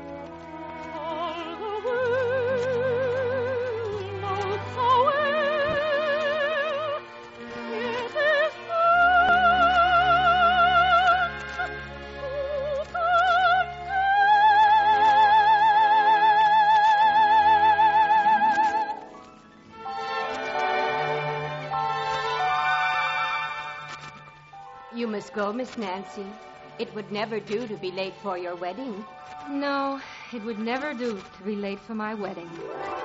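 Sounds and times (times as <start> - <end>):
orchestra playing: 0.0 - 33.0
operatic soprano singing: 0.5 - 19.0.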